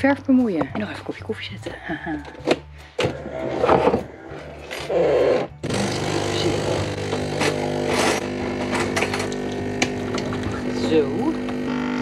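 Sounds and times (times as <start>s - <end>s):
coffee machine buzzing hum: 5.0s - 12.0s.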